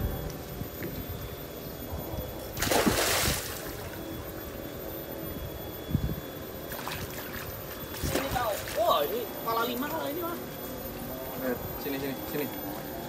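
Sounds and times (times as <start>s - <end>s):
wind rumble on microphone: 0.0s - 3.9s, 5.3s - 9.0s
fish splashing in water: 2.6s - 4.0s.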